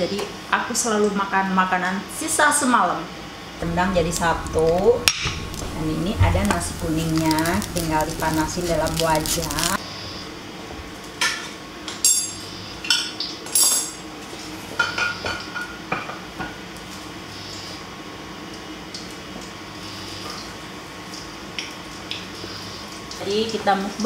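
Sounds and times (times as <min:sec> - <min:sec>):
faint steady hum: 0:02.1 - 0:11.2.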